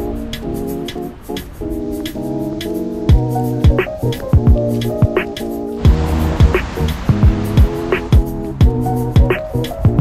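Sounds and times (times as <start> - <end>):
music with held chords: 0.0 - 10.0
deep kick drums: 5.8 - 9.3.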